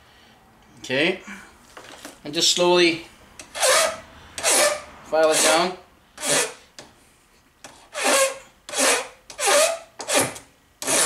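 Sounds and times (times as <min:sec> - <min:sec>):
file rasping on brass: 0:03.6 - 0:06.6, 0:07.8 - 0:11.0.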